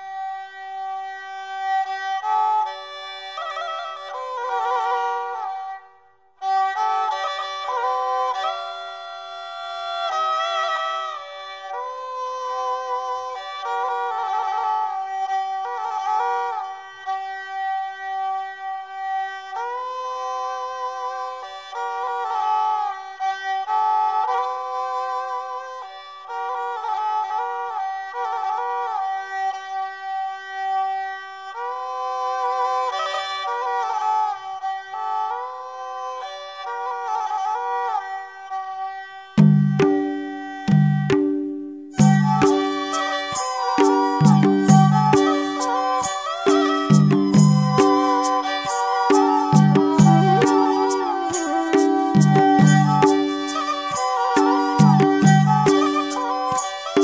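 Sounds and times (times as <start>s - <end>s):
slow melody of held notes: 39.5s - 57.0s.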